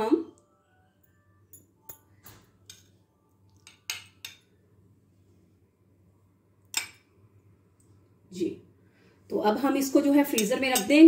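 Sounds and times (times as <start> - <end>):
metal spoon clinking on dishes: 1.5 - 4.5, 6.7 - 7.1, 10.2 - 11.0.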